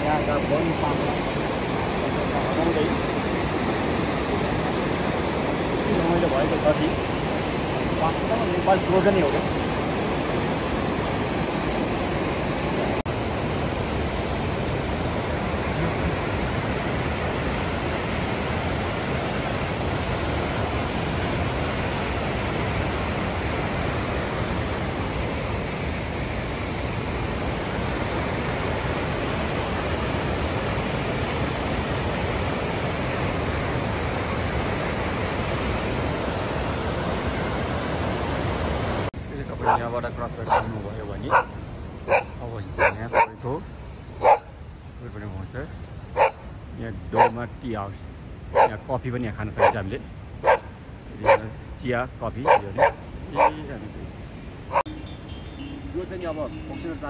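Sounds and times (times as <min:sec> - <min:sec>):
mountain river roaring: 0:00.0 - 0:57.0.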